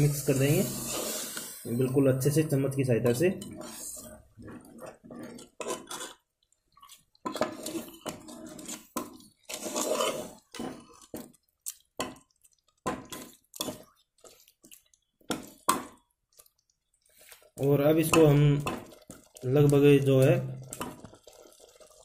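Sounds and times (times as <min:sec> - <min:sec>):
ladle scraping and clinking pot: 0:00.0 - 0:11.2, 0:18.0 - 0:19.4, 0:20.6 - 0:22.0
wet churning of sauce: 0:00.2 - 0:22.0.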